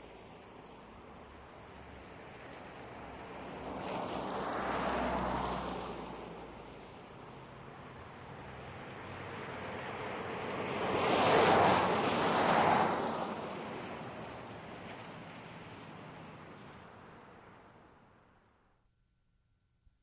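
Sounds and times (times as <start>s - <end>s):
ocean waves washing in: 0.0s - 18.4s.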